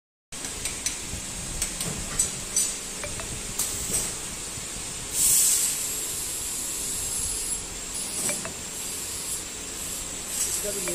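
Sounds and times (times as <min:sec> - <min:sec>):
compressed air hiss: 0:05.1 - 0:10.8.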